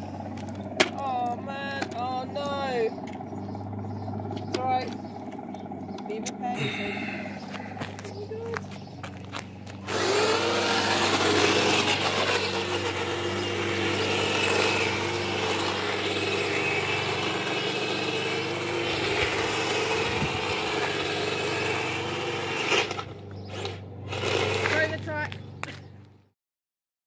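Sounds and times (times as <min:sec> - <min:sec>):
toy tank motor whining: 0:00.0 - 0:25.4.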